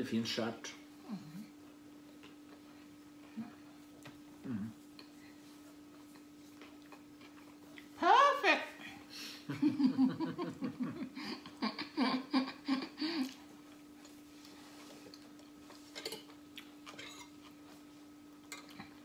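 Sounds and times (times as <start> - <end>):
steady low hum: 0.0 - 19.0
laughter: 9.5 - 13.3.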